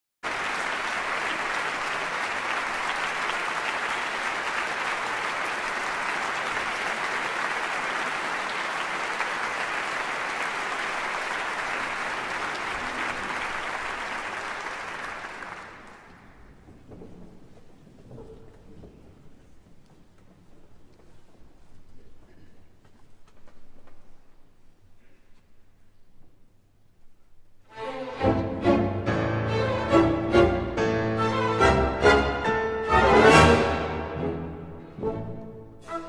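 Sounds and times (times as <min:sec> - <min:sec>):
audience applauding: 0:00.2 - 0:16.4.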